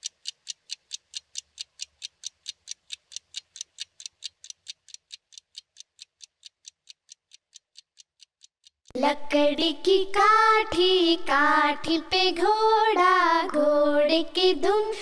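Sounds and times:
clock ticking: 0.0 - 9.0.

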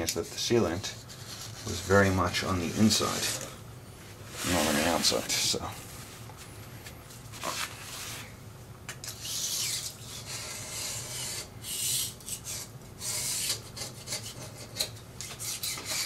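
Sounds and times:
blade scraper scraping sealant: 9.1 - 16.0.

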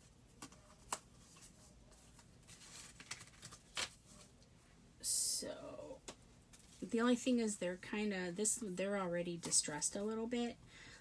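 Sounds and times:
playing cards rustling: 0.0 - 4.4.

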